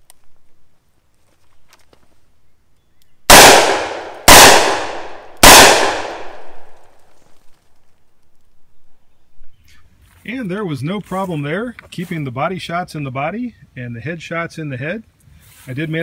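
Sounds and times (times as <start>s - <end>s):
revolver gunshots with echo: 3.3s - 6.8s.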